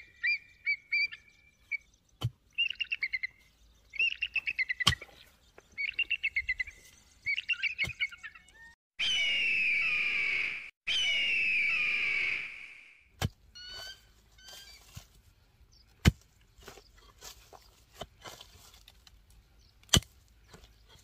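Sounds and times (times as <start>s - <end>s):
bird of prey crying: 0.0s - 1.8s, 7.3s - 12.9s, 13.6s - 14.8s
faint bird chirps: 0.0s - 12.9s, 13.6s - 14.9s
pickaxe striking soil: 13.2s - 13.9s, 16.0s - 19.0s, 19.8s - 21.0s.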